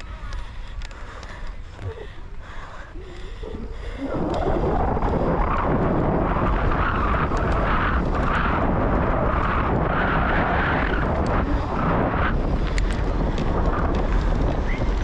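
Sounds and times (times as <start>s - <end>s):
bicycle tyres rolling over gravel: 0.0s - 15.0s
wind buffeting microphone: 0.0s - 15.0s
small clicks and rattles: 10.7s - 15.0s.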